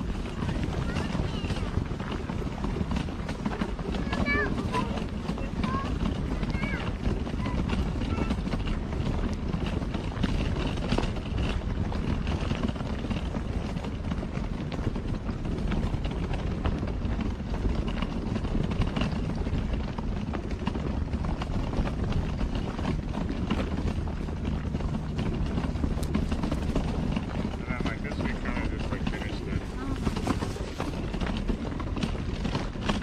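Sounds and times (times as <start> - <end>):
low wind rumble on microphone: 0.0 - 33.0
footsteps crunching on gravel: 19.6 - 33.0.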